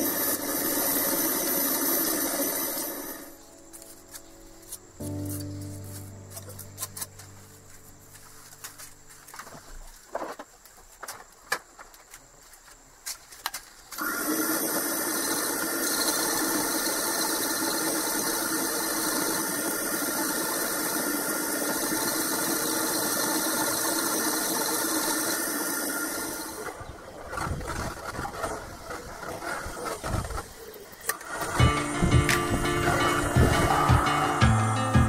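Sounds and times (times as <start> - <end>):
wood lathe humming: 0.0 - 3.4, 14.0 - 30.5.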